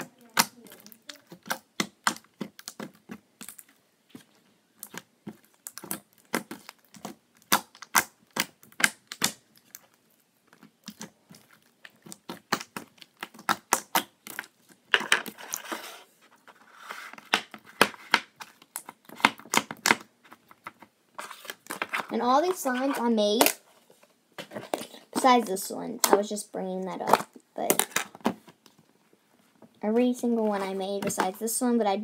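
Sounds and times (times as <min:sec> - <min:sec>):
slime squishing: 0:00.0 - 0:15.7
slime clicking and popping: 0:04.8 - 0:09.9, 0:10.6 - 0:14.5.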